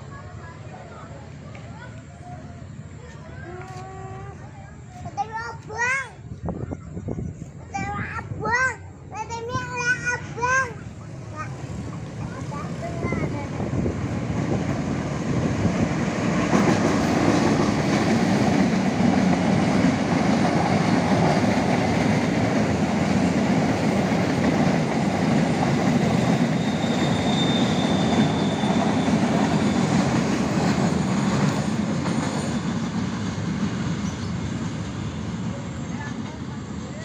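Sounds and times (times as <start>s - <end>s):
freight train wheels rumbling: 0.0s - 37.0s
high wheel squeal: 26.0s - 30.5s.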